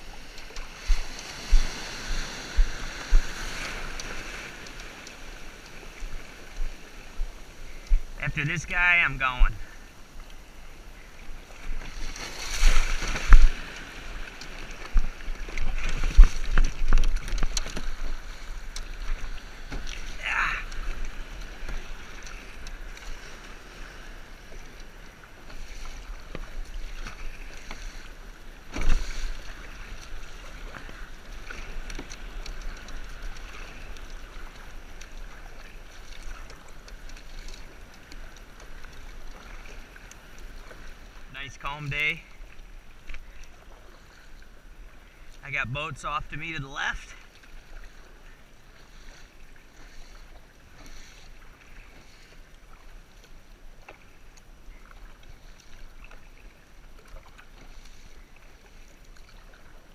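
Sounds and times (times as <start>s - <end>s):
low wind rumble on microphone: 0.0s - 4.8s
paddle strokes in water: 0.0s - 59.9s
water splashing around kayak: 0.0s - 59.9s.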